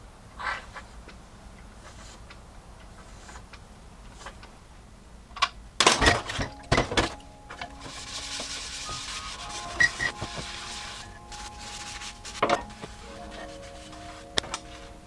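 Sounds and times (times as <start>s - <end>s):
sponge scrubbing a dish: 7.8s - 14.9s.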